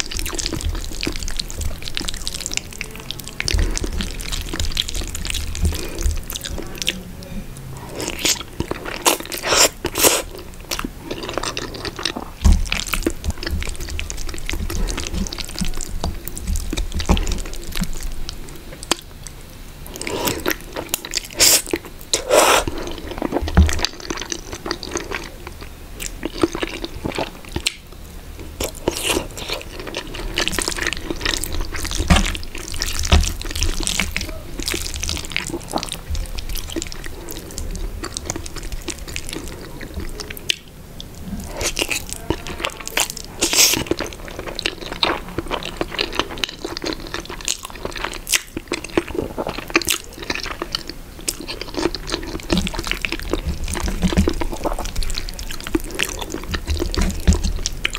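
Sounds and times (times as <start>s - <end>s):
chewing and lip smacks: 0.0s - 7.0s, 7.6s - 57.9s
slurping noodles: 7.8s - 10.4s, 19.9s - 23.4s.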